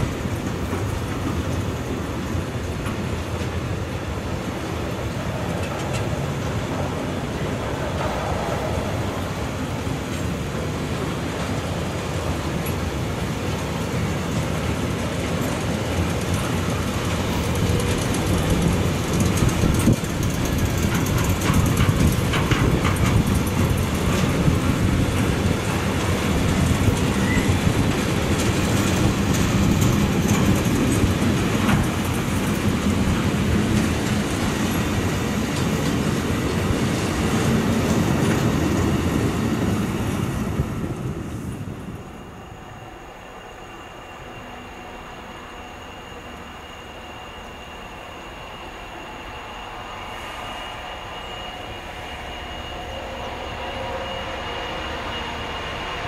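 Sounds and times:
train wheel and rail rumble: 0.0 - 56.0.

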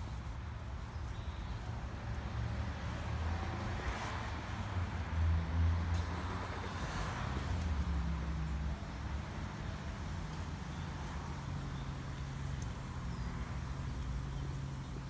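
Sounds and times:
faint outdoor hiss: 0.0 - 15.0
street traffic engine hum: 0.0 - 15.0.

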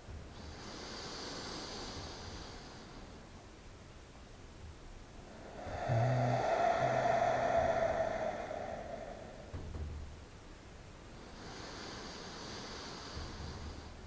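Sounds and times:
faint voice humming: 5.2 - 10.0
man breathing deeply: 5.2 - 10.2.

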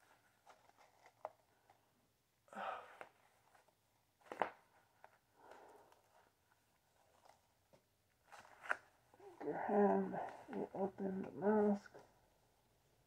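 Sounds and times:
gloved fingers rustling mask: 0.0 - 1.9.

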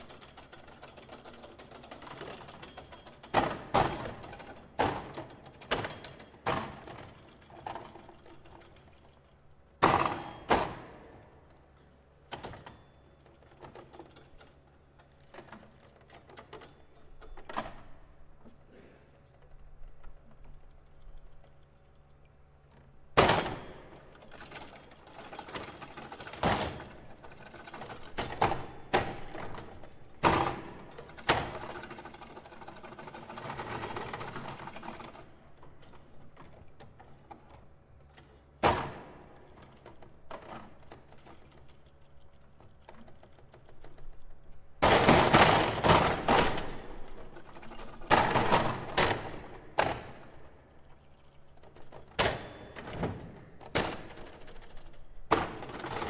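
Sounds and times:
foosball rods and figures clacking: 0.0 - 8.5, 44.8 - 56.0.

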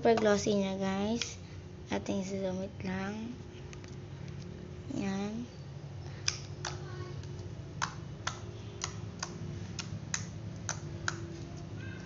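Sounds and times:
steady low hum: 0.0 - 12.0
slime clicking and popping: 7.8 - 11.3.

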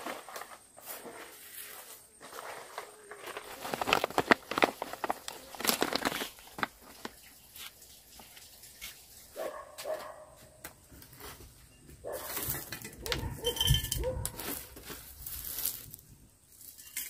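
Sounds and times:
plastic pouch crinkling: 2.4 - 8.3.

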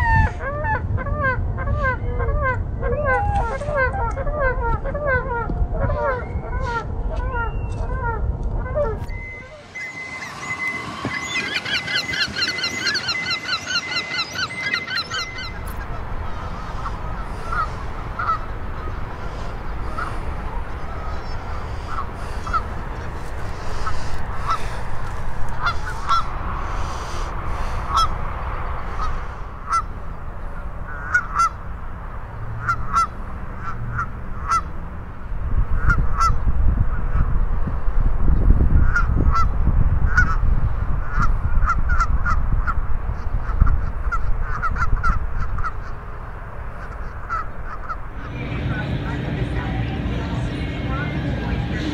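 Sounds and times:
geese honking: 0.0 - 28.2, 28.8 - 31.7, 32.6 - 34.7, 35.7 - 36.4, 41.0 - 51.9
gulls laughing calls: 0.0 - 31.8, 38.8 - 51.9
low rumble: 47.6 - 51.9.

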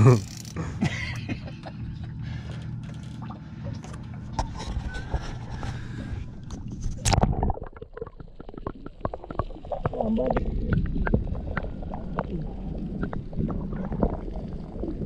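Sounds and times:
fishing reel being worked: 0.2 - 0.6
water slopping around boat: 1.7 - 15.0.

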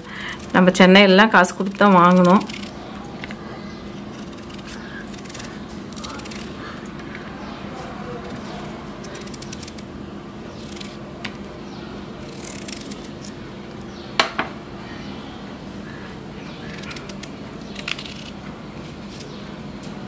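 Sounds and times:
knife scraping vegetable skin: 1.6 - 2.8, 4.0 - 6.9, 7.8 - 9.9, 12.2 - 13.4, 16.6 - 18.4.

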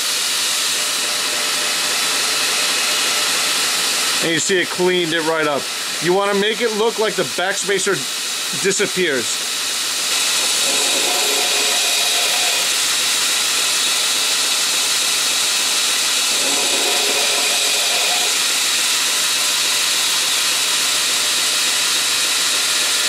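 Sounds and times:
belt grinder hissing: 0.0 - 23.0
metal grinding tone: 10.4 - 12.8, 16.3 - 18.6.

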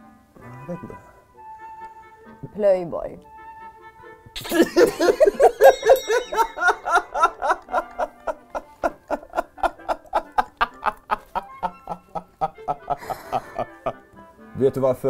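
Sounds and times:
light background music: 0.0 - 15.0
person laughing heartily: 4.4 - 14.0.

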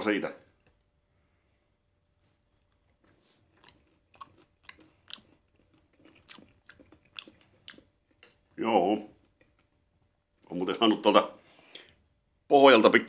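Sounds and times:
chewing crunchy food: 2.5 - 10.0.

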